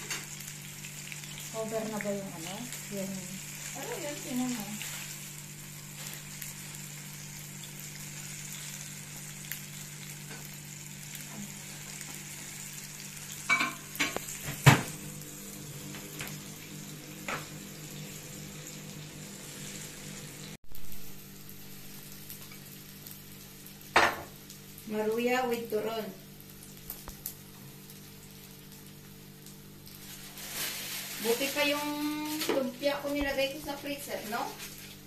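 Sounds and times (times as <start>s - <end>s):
food sizzling in oil: 0.0s - 35.0s.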